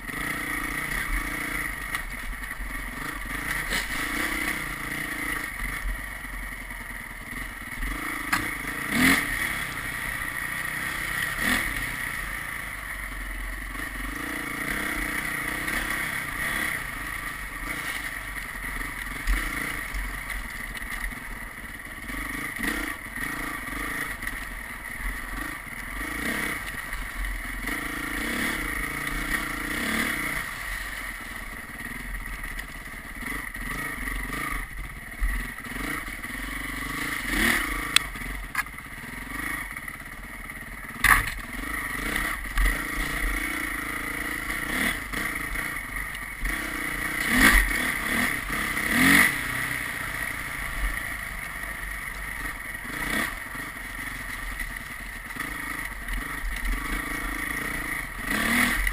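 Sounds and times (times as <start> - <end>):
road noise: 0.0 - 58.9
vehicle engine running: 0.0 - 58.9.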